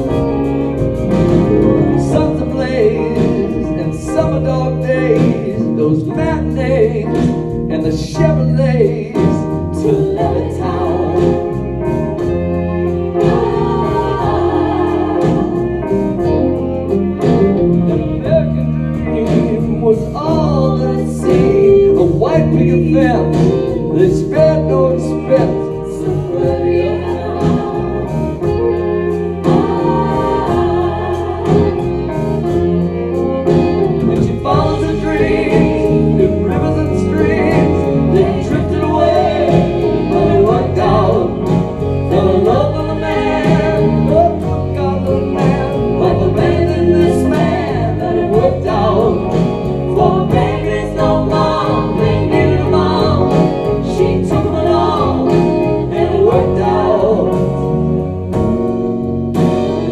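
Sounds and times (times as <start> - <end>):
choir singing: 0.0 - 7.4, 8.8 - 58.3
live band playing: 0.0 - 59.9
piano: 0.0 - 59.9
women singing together: 13.2 - 15.8, 26.1 - 28.6, 29.4 - 32.1, 37.6 - 57.4.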